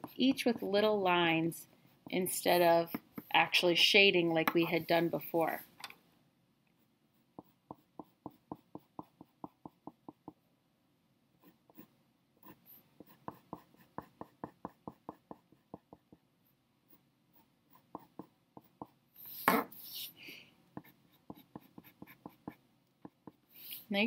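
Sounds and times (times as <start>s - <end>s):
pencil scratching on paper: 0.0s - 0.7s, 6.8s - 10.4s, 11.4s - 20.1s, 20.8s - 23.9s.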